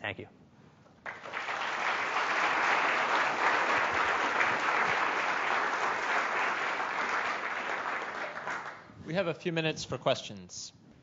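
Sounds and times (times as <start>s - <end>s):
audience applauding: 1.0s - 8.9s.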